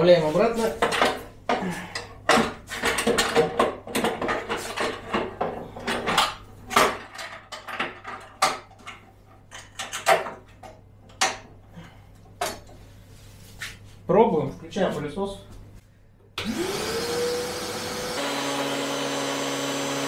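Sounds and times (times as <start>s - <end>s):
hard plastic clattering and knocking: 2.2s - 11.6s.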